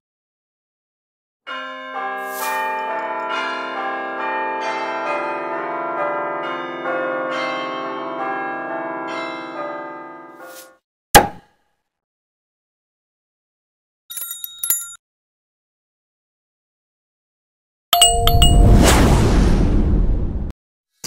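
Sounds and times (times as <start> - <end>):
bell-like chiming music: 1.5 - 10.4, 18.0 - 18.8.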